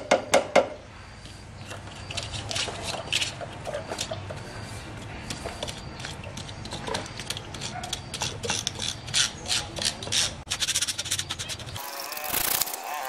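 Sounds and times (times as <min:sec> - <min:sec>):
metal spatula scraping steel thread: 0:05.3 - 0:12.8.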